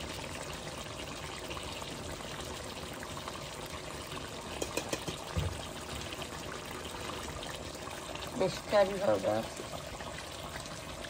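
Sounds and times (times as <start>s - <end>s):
food frying in a pan: 0.0s - 11.0s
soft knock: 4.6s - 5.6s.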